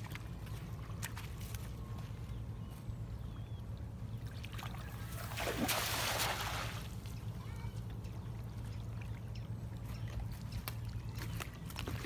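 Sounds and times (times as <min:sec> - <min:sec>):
steady low hum: 0:00.0 - 0:12.0
net splashing into water: 0:04.4 - 0:06.9.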